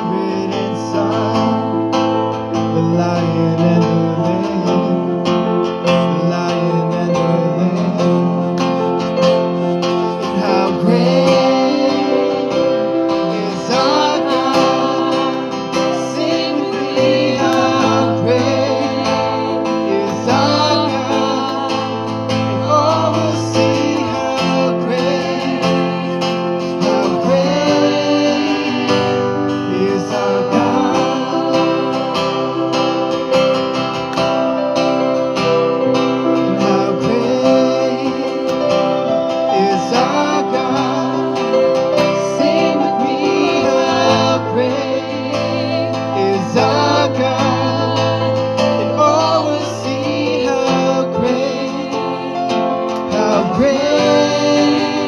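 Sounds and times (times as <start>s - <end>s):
electric guitar: 0.0s - 55.0s
strummed acoustic guitar: 0.0s - 55.0s
women singing: 10.3s - 33.1s, 36.6s - 55.0s.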